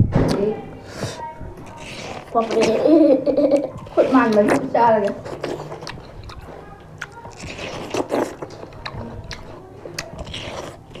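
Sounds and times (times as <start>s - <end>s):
juicy bites and chewing: 4.3s - 11.0s.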